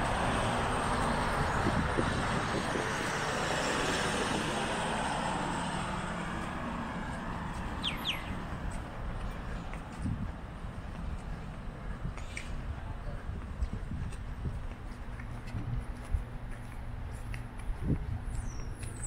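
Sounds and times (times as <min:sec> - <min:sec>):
bird chirps: 0:07.8 - 0:08.4.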